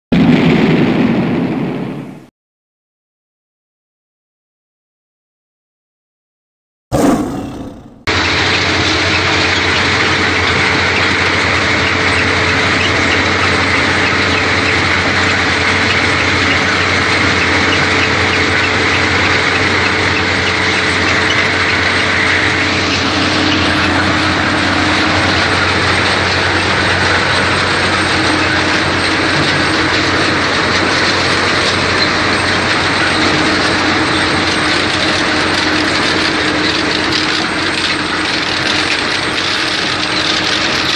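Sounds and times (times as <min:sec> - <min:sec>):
brief sharp sound effect: 0:06.9 - 0:08.1
harvester engine and conveyors rattling: 0:07.0 - 0:40.9
high machine whine: 0:07.0 - 0:40.9.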